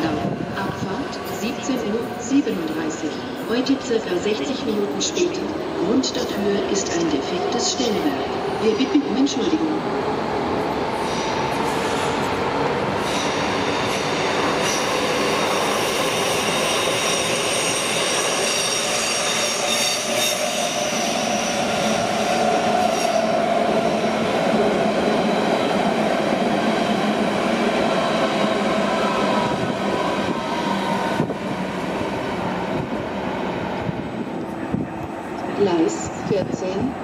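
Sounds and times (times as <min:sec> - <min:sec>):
electric train passing on rails: 0:00.0 - 0:37.0.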